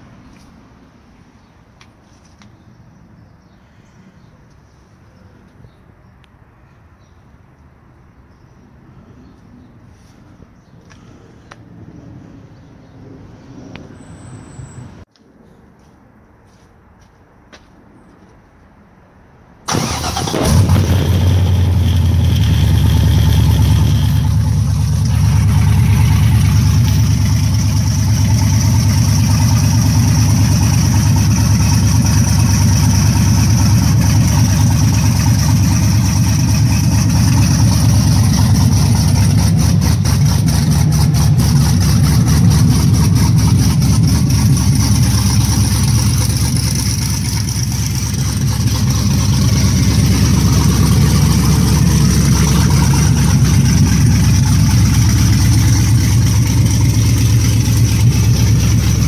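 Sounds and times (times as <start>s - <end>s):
car engine starting and idling: 19.6s - 59.0s.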